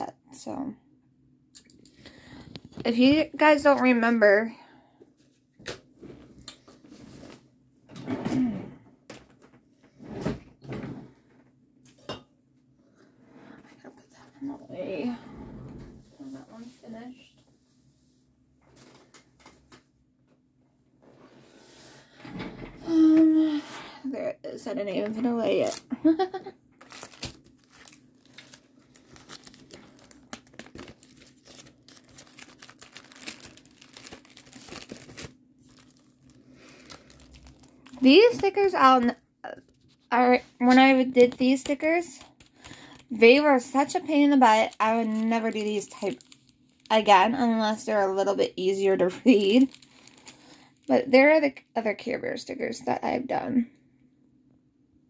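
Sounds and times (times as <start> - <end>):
plastic sleeves crinkling: 25.2 - 51.2.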